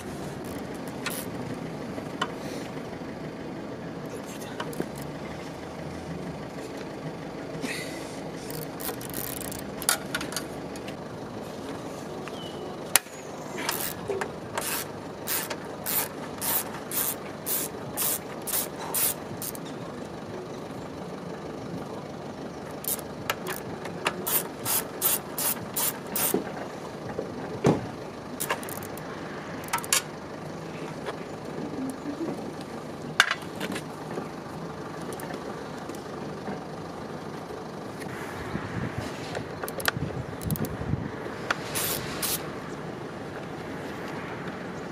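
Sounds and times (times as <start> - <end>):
ratchet wrench clicking: 0.4 - 1.4, 8.5 - 10.5, 13.6 - 19.7, 22.8 - 26.4, 28.4 - 29.0, 29.6 - 30.1, 39.6 - 40.7, 41.5 - 42.4.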